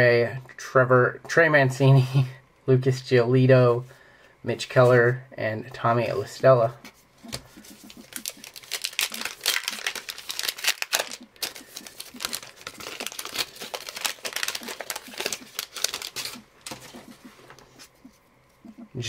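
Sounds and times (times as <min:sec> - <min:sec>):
foil wrapper tearing and crinkling: 0:07.3 - 0:17.2.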